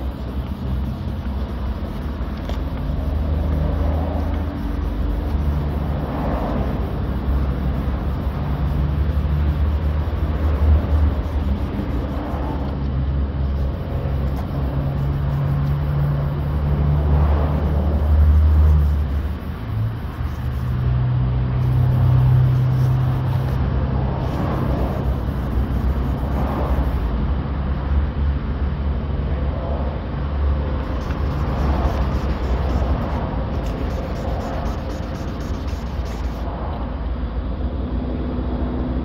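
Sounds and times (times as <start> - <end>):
wet sandpaper rubbing car paint: 0.0 - 12.8, 13.4 - 23.6, 24.2 - 27.1, 30.8 - 36.5
vehicle engine rumbling: 0.0 - 39.0.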